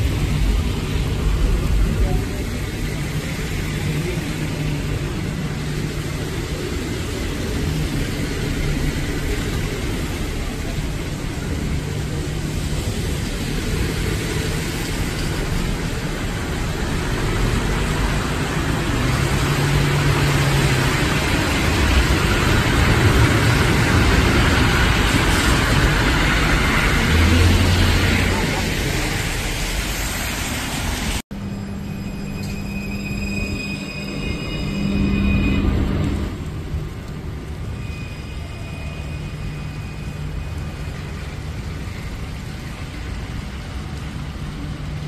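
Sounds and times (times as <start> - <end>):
traffic on wet road: 0.0 - 45.0.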